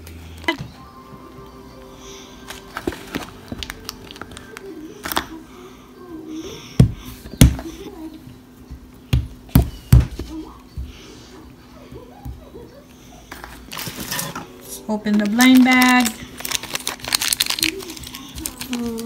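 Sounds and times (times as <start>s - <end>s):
plastic tub and foil clicks: 15.0s - 19.0s.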